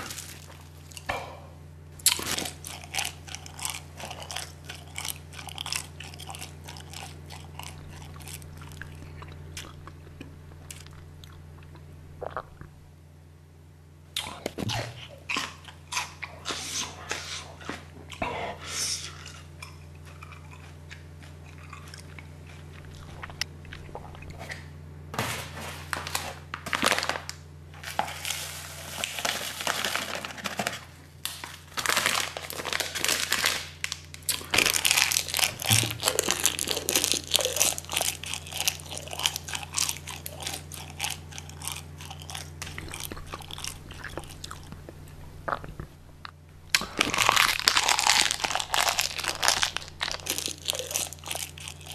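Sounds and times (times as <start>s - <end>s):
low steady hum: 0.0s - 51.9s
plastic sachet crinkling: 25.7s - 45.6s, 46.6s - 51.9s.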